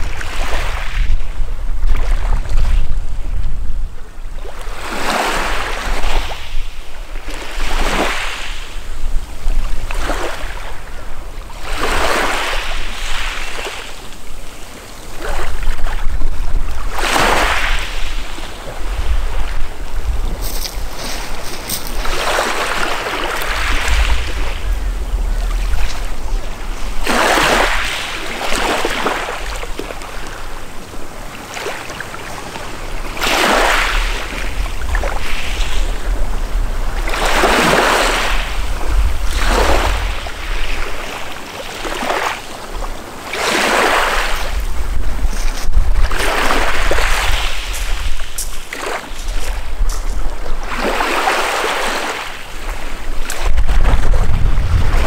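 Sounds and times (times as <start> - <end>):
waves washing on pebbles: 4.4 - 55.0
low rumble: 18.8 - 31.3, 32.3 - 43.2, 44.2 - 48.3, 53.6 - 55.0.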